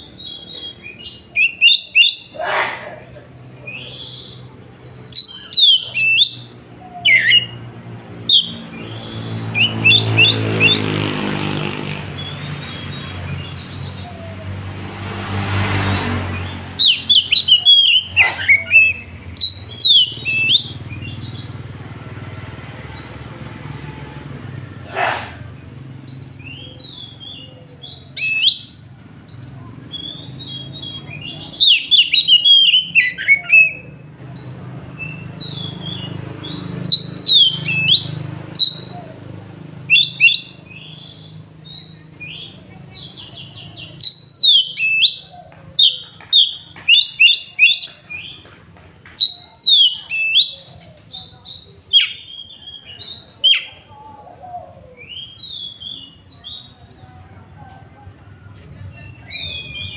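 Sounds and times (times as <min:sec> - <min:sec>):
bird singing whistled phrases: 0:00.0 - 0:02.4, 0:03.4 - 0:10.8, 0:16.7 - 0:21.2, 0:26.1 - 0:28.8, 0:29.4 - 0:33.9, 0:35.0 - 0:39.0, 0:39.8 - 0:48.4, 0:49.2 - 0:54.0, 0:59.1 - 0:59.9.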